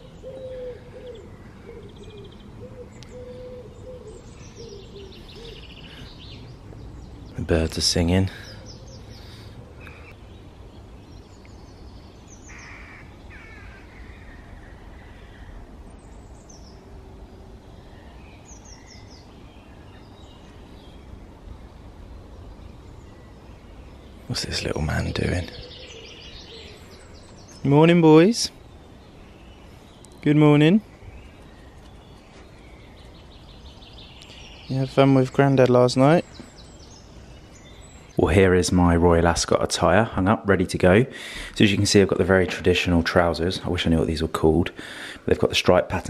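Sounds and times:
pigeon cooing: 0.0s - 6.1s
low outdoor rumble: 0.0s - 46.0s
songbirds chirping: 0.0s - 46.0s.

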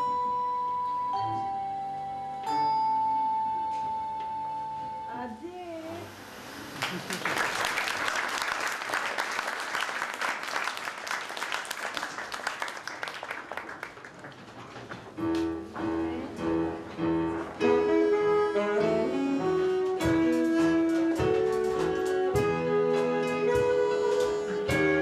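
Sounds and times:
audience applause: 6.6s - 14.7s
keyboard and bowed strings playing: 16.1s - 25.0s.

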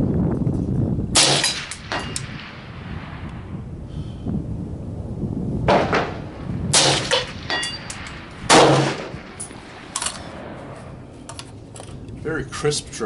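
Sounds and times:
rifle shots: 1.2s - 3.2s, 5.7s - 10.8s
short metallic ring: 7.5s - 8.1s.

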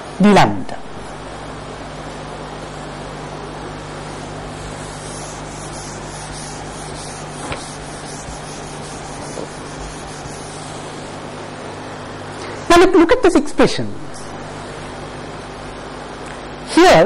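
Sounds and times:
steady hiss and low hum: 0.0s - 17.0s
eraser rubbing on whiteboard: 4.1s - 11.2s.

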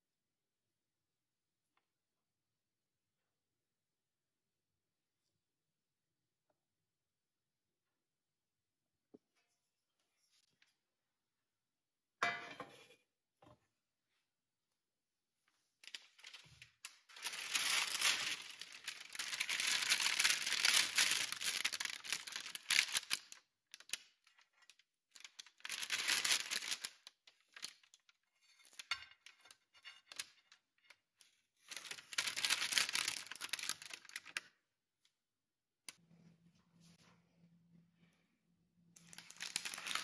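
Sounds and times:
parchment paper crinkling: 15.8s - 34.6s, 39.0s - 40.0s.

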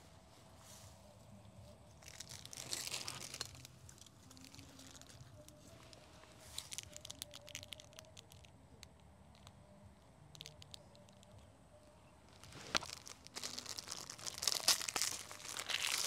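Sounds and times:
dry leaves crackling underfoot: 0.4s - 8.4s, 12.2s - 16.0s.

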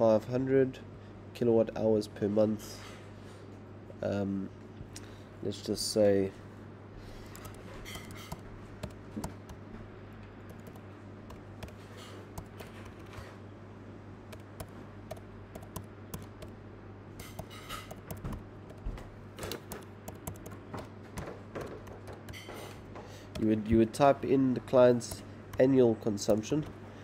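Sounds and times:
steady low hum: 3.6s - 27.0s
keyboard key clicks: 7.3s - 9.7s, 10.5s - 13.3s, 14.3s - 16.6s, 17.2s - 22.7s, 23.3s - 23.7s, 25.0s - 26.8s.

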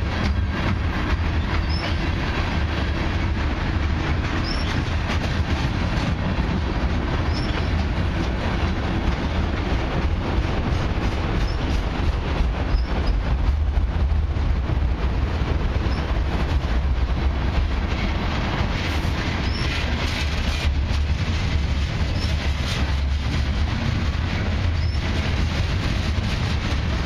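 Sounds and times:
train wheels rumbling on rails: 0.0s - 27.0s
high wheel squeals: 1.5s - 2.0s, 4.4s - 4.8s, 7.3s - 7.7s, 24.8s - 25.0s.

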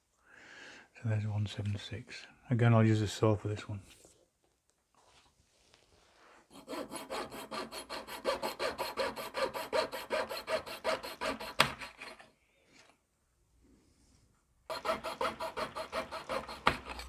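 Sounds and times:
small saw cutting wooden dowel: 6.5s - 12.4s, 14.7s - 17.0s.

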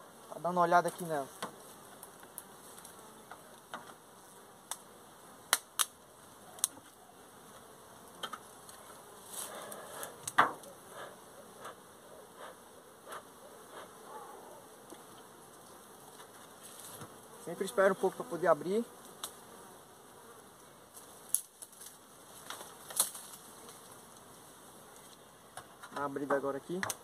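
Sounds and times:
bee smoker bellows puffing: 8.1s - 14.3s.

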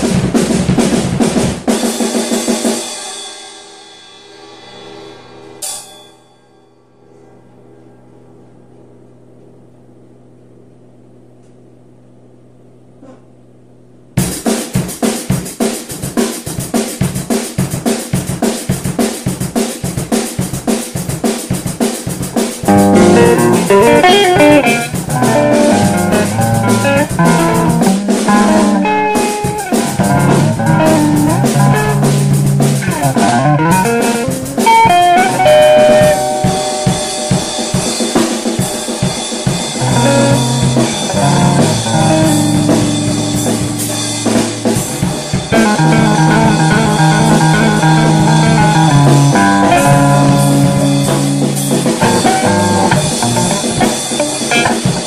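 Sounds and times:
drum kit beat: 0.0s - 3.7s, 14.2s - 55.0s
bass and electric guitar: 22.5s - 38.6s, 39.4s - 55.0s.

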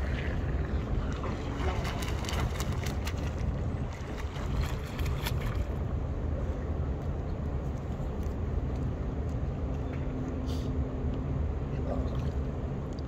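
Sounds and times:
pool water rumble: 0.0s - 7.3s.

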